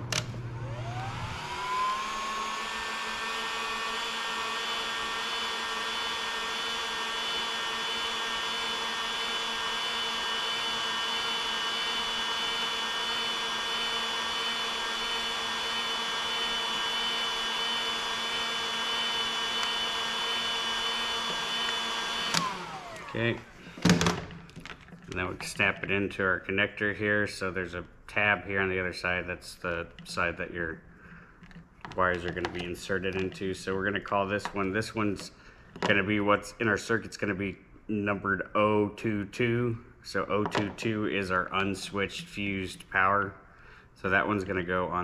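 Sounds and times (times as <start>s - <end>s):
heat gun fan whine: 0.0s - 25.7s.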